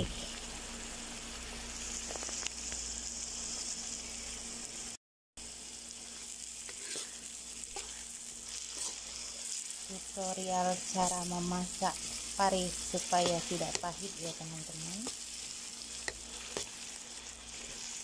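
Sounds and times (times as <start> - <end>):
paste sizzling in hot oil: 0.0 - 18.0
spoon scraping wok: 6.0 - 18.0.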